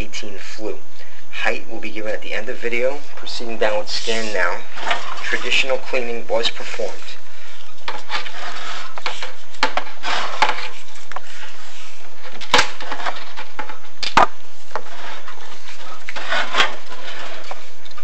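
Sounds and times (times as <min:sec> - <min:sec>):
cable scraping against flue tiles: 0:03.2 - 0:06.0, 0:06.6 - 0:13.9, 0:14.7 - 0:18.0.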